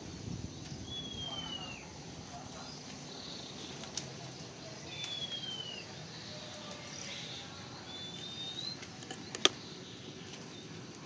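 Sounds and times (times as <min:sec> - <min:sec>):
thin bird whistles: 0:00.8 - 0:01.9, 0:04.9 - 0:05.9, 0:07.2 - 0:08.9.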